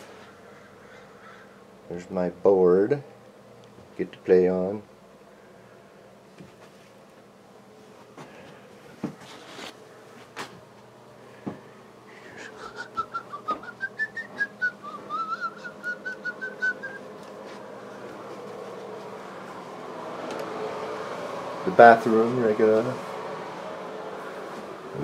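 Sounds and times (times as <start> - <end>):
person whistling short high notes: 12.9 - 17.0.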